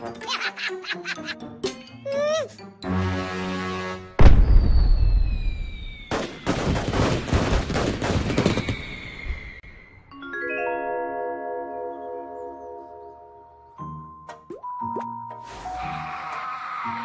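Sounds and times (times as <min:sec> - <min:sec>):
falling whistle: 0:04.4 - 0:06.2, 0:08.3 - 0:10.1
ringing mallet percussion music: 0:10.1 - 0:15.2.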